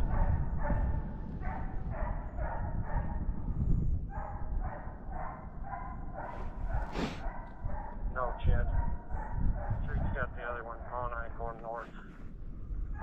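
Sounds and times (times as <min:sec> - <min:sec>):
hounds barking: 0:00.0 - 0:12.0
low wind rumble on microphone: 0:00.0 - 0:13.0.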